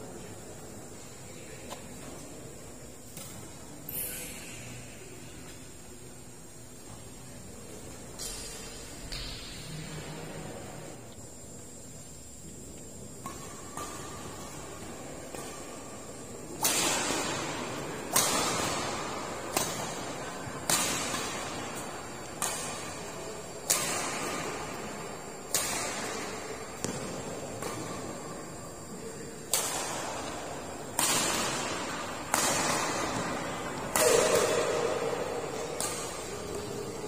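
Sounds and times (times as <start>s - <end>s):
racket hitting shuttlecock: 3.0s - 3.7s, 13.1s - 28.3s, 29.2s - 37.0s.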